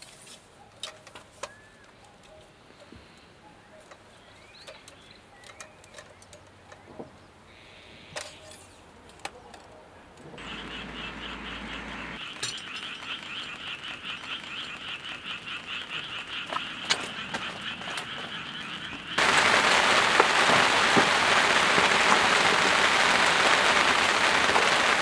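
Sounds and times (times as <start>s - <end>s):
frogs calling in chorus: 10.4s - 19.2s.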